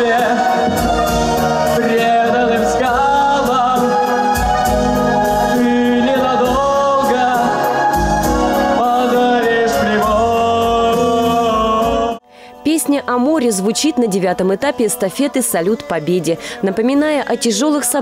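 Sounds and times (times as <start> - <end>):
man singing into a microphone: 0.0 - 12.2
instrumental accompaniment: 0.0 - 17.2.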